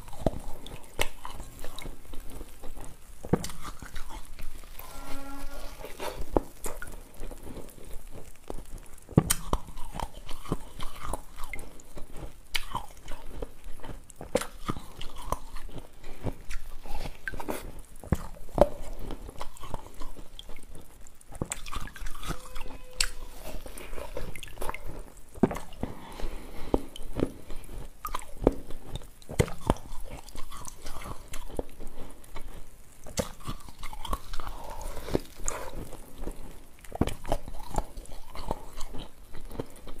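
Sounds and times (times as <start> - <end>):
quiet chewing: 0.0 - 40.0.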